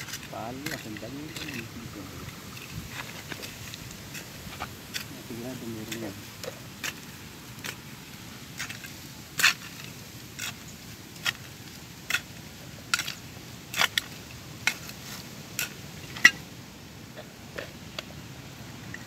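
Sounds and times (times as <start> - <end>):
hand tool chopping stony soil: 0.0 - 1.8, 2.6 - 7.9, 8.5 - 16.4.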